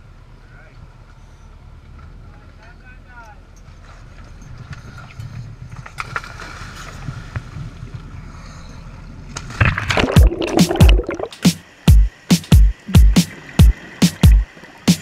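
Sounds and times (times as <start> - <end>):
boat engine rumble: 0.0 - 15.0
diver splashing into water: 9.4 - 11.6
rushing bubbles: 9.5 - 11.4.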